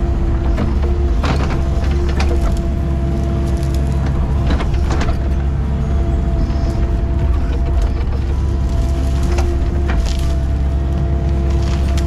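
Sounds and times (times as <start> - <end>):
excavator diesel engine rumbling: 0.0 - 12.0
sharp knocks and rattles: 4.0 - 5.6.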